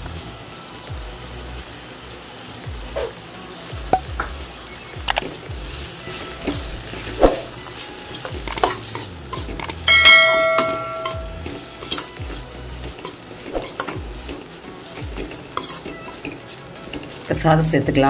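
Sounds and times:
food sizzling: 0.0s - 18.0s
bell-like metallic ring: 9.9s - 11.5s
spoon scraping steel pan: 15.6s - 15.9s.

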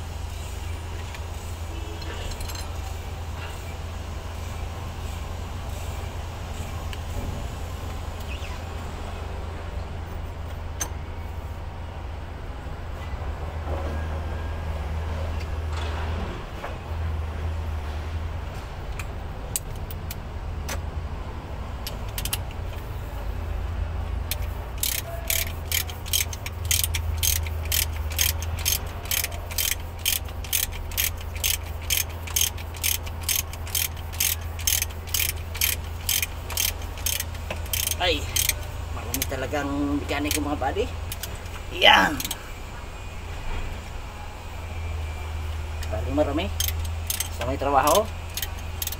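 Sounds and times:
ratchet wrench clicking: 2.3s - 3.0s, 21.8s - 23.1s, 24.2s - 42.4s, 45.8s - 48.9s
tool clicks: 21.8s - 22.9s, 24.2s - 39.4s, 46.5s - 48.9s.

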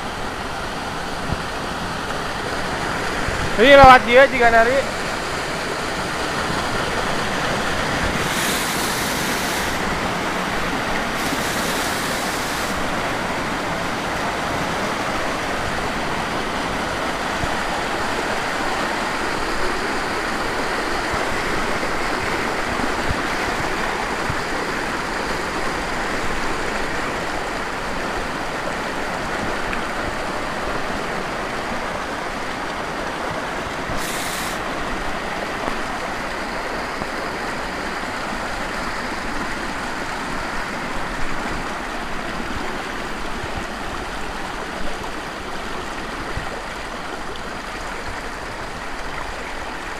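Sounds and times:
waterfall roaring: 0.0s - 49.9s
bright hiss: 8.2s - 9.9s, 11.2s - 12.8s, 33.9s - 34.6s.

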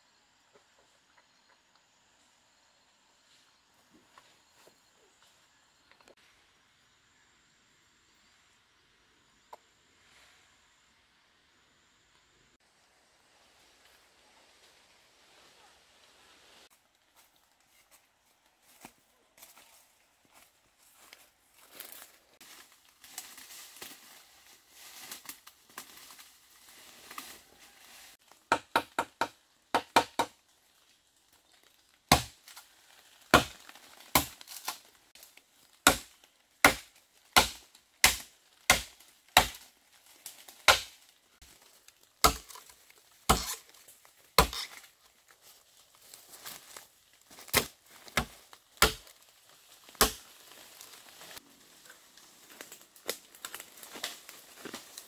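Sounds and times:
tool chopping bamboo: 28.4s - 30.4s, 32.1s - 32.5s, 33.3s - 34.8s, 35.8s - 39.7s, 40.3s - 41.0s, 42.2s - 43.7s, 44.4s - 44.9s, 47.5s - 49.2s, 49.9s - 50.2s.

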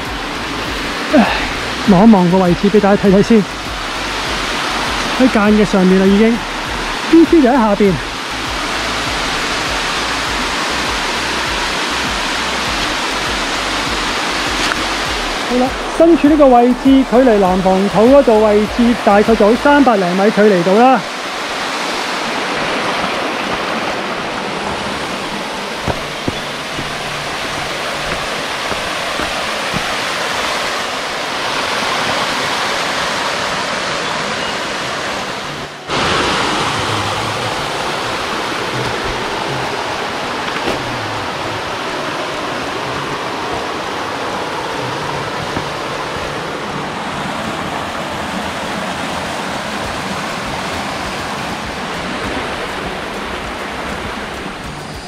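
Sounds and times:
mountain stream water rushing: 0.0s - 55.0s.

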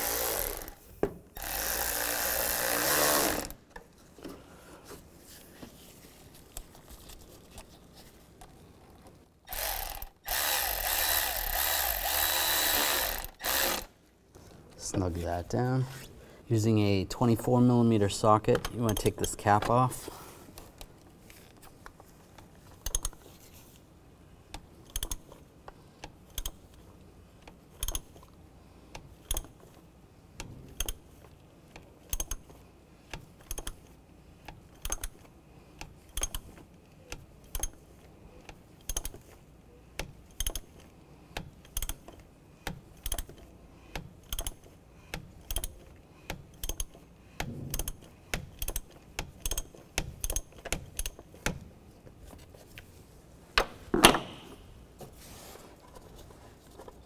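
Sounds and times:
ratchet clicking: 9.5s - 13.9s, 24.8s - 25.3s, 27.4s - 28.2s, 29.0s - 29.6s, 30.7s - 31.0s, 32.0s - 36.5s, 37.1s - 37.8s, 38.8s - 39.2s, 40.0s - 51.6s.

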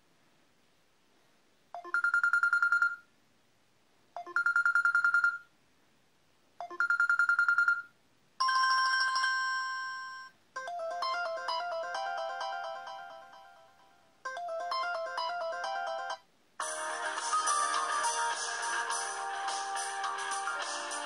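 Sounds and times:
quick melodic ringtone tune: 8.4s - 21.0s.

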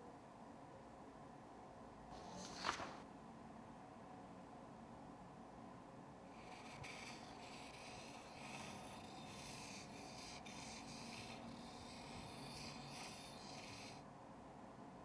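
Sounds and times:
pencil scratching on paper: 6.3s - 14.0s.

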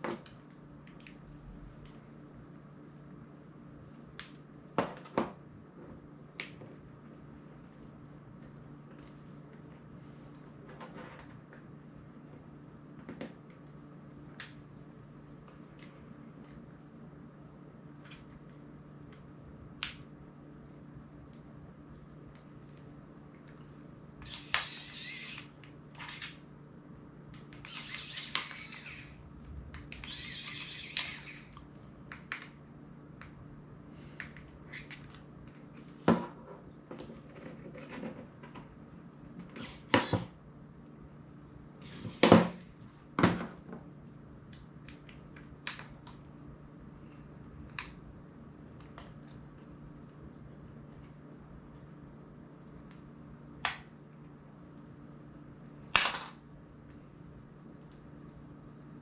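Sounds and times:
faint low hum: 0.0s - 59.0s
screwdriver scraping plastic: 24.2s - 26.4s, 27.4s - 29.2s, 29.8s - 31.6s
casing clicks and snaps: 47.6s - 48.0s.

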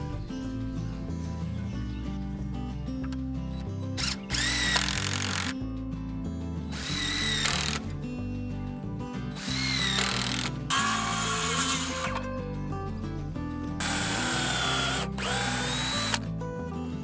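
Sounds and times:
background music: 0.0s - 17.0s
cordless drill whining: 4.0s - 5.6s, 6.7s - 7.8s, 9.4s - 12.2s, 13.8s - 16.2s.

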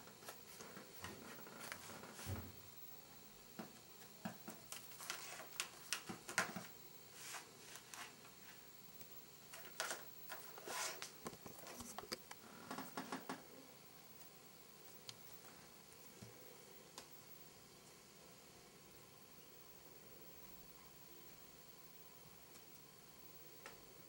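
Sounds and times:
paper rustling: 4.7s - 8.6s, 9.5s - 12.2s.

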